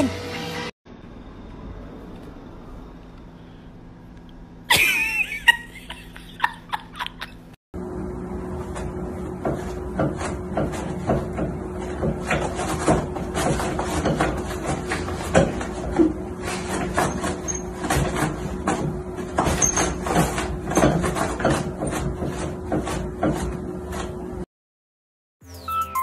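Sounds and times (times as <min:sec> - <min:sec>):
toilet paper roll rattling: 0:08.8 - 0:24.4.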